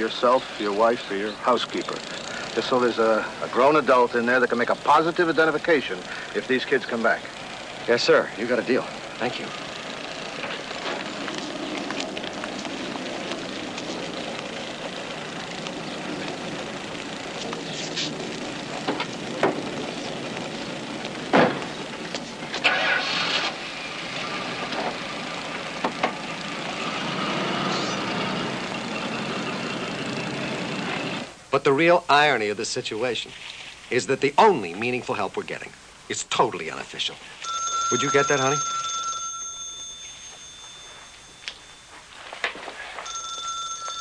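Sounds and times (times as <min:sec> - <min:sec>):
car engine starting and running: 0:00.1 - 0:31.4
car door shutting: 0:21.3 - 0:21.7.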